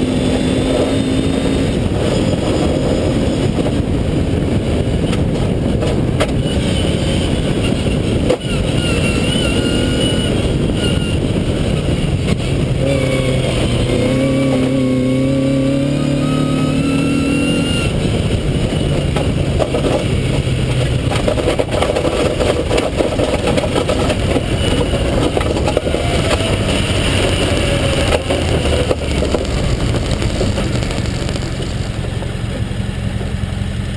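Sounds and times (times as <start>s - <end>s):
car engine: 0.0s - 33.9s
tyres on gravel: 17.8s - 33.9s
stones clicking against car: 19.0s - 26.6s, 27.3s - 32.6s.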